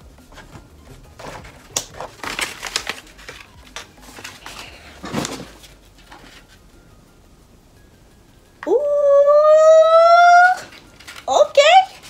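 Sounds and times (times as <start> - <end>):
handling clicks and rustles: 0.0 - 6.6.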